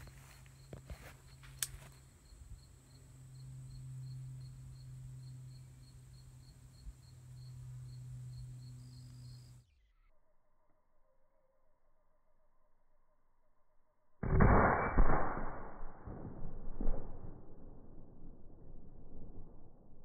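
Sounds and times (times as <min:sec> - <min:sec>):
faint insect chirping: 0:00.0 - 0:14.2
low steady hum: 0:00.1 - 0:09.7
sharp click: 0:01.5 - 0:01.8.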